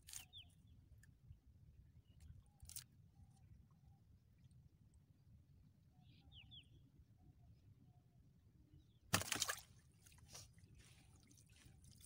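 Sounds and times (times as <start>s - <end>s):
water splashes: 9.1s - 12.0s.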